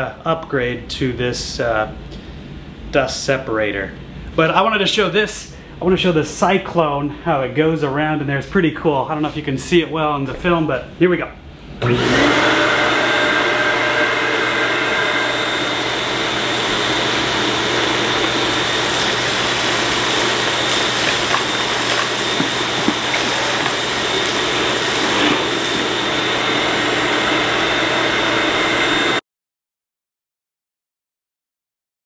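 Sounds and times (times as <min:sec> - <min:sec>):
shop vacuum running: 0:11.7 - 0:29.2.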